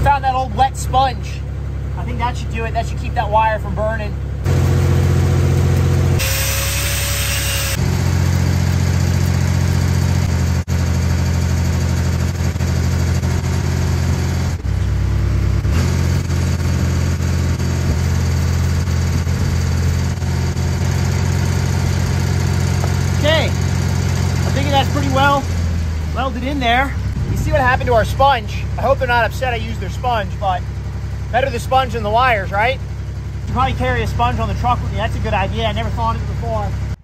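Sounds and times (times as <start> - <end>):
welding machine engine running: 4.5 - 27.6.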